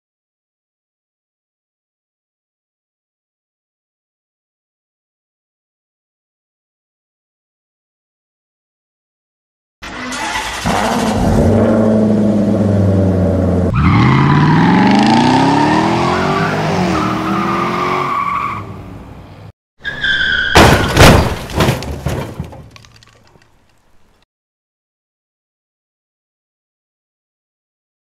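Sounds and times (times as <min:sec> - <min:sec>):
car engines revving: 0:09.8 - 0:19.5
tyre screech: 0:19.8 - 0:21.3
crash impacts: 0:20.5 - 0:24.2.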